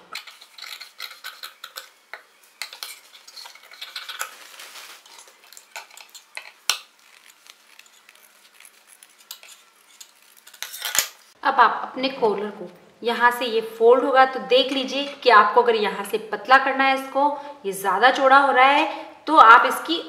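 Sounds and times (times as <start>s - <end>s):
shear blades sliding: 2.6s - 11.4s
shears snipping paper: 3.5s - 11.2s.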